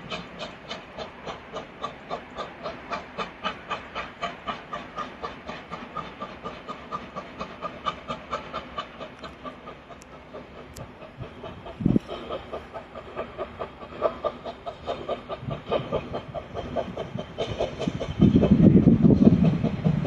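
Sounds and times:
steady steam hiss: 0.0 - 20.0
steam locomotive chuffing: 0.0 - 20.0.

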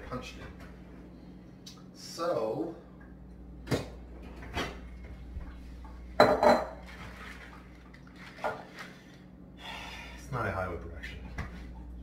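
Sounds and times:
glass bowl clunking on countertop: 6.2 - 6.8
kitchenware clattering: 6.2 - 7.1.

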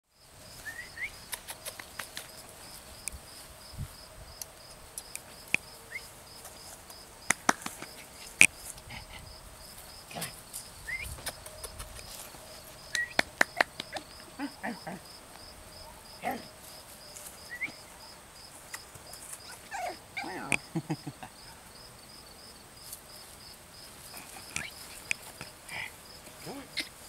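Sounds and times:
cricket chirping: 0.1 - 27.0
sharp clicks: 1.3 - 2.4.

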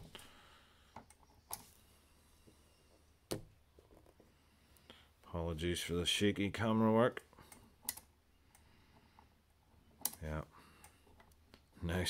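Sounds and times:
faint metal clicks: 10.0 - 11.7.

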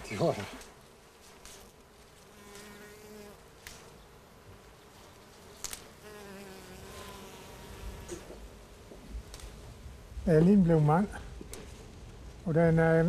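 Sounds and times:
flying insects buzzing: 0.0 - 10.2
small sharp clicks: 3.6 - 3.9, 5.6 - 5.9.

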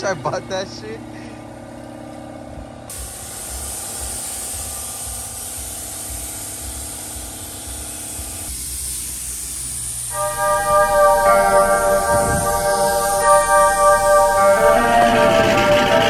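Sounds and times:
mechanical hum: 0.0 - 16.0
paint spray gun hissing: 2.9 - 10.2.

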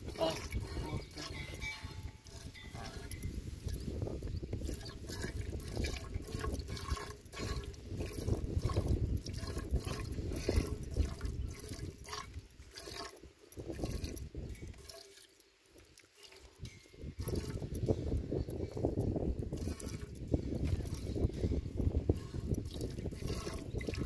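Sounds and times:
milk squirting into steel pot: 2.2 - 24.0.

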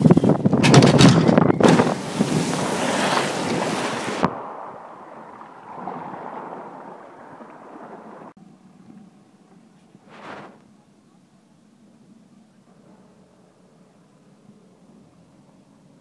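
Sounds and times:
boat hitting water with rumble: 0.1 - 8.3
faint water wash: 1.6 - 8.4.

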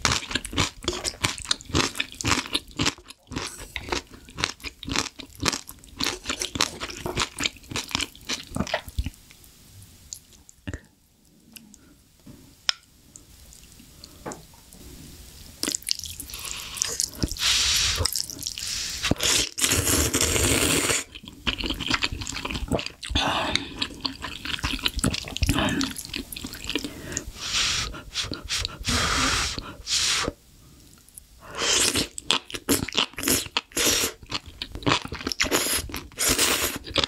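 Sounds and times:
wet slurping of noodles: 16.2 - 21.1.

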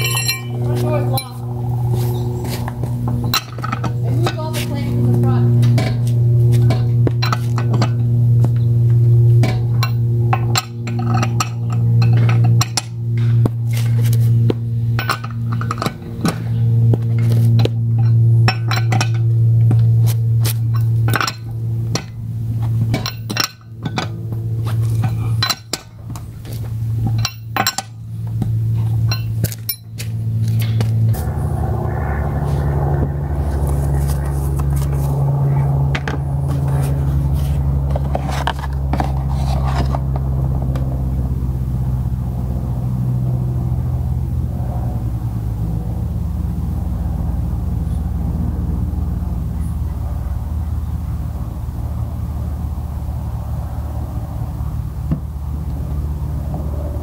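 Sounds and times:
lug wrench clinking on lug nuts: 0.0 - 0.6, 6.7 - 8.0, 9.4 - 13.4, 15.0 - 16.4, 17.0 - 22.2, 22.8 - 28.1, 28.7 - 30.8.

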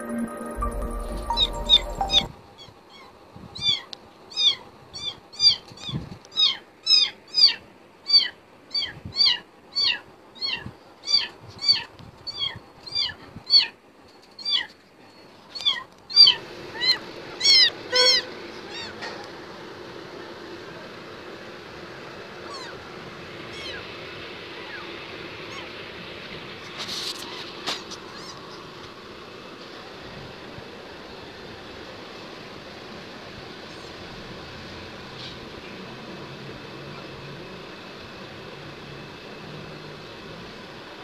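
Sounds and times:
kitten meowing: 22.4 - 22.8, 23.5 - 23.8.

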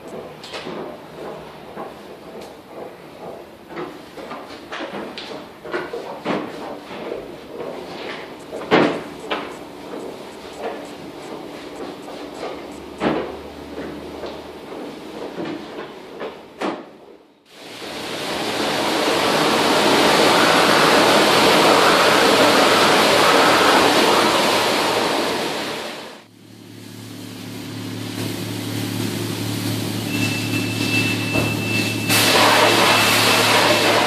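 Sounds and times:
machine hum: 7.5 - 15.3, 17.5 - 34.0
high-pressure water spray hissing: 17.5 - 26.2, 26.9 - 34.0.

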